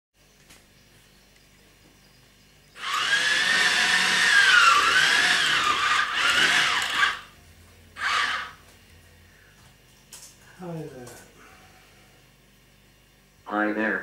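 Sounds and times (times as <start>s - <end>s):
robot track motors whirring: 2.8s - 7.3s, 8.0s - 8.6s.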